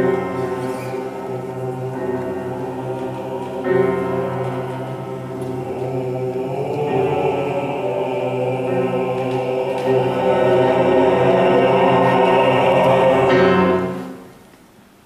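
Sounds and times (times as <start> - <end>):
men's vocal ensemble singing: 0.0 - 14.2.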